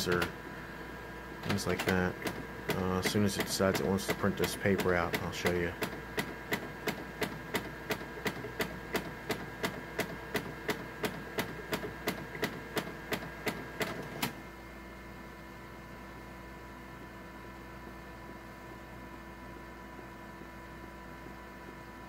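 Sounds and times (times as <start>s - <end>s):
printer clicking: 0.0s - 0.4s, 1.4s - 14.4s
faint steady hum: 0.0s - 22.0s.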